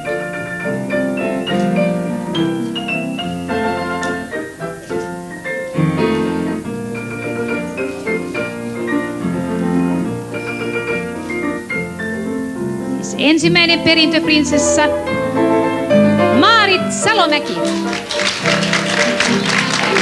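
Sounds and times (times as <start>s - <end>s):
keyboard melody with bass line: 0.0s - 20.0s.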